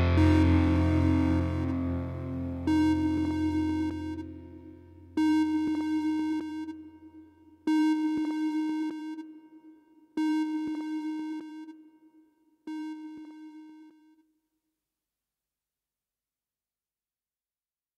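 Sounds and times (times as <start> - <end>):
low hum: 0.0 - 5.8
synthesizer notes: 0.0 - 6.6.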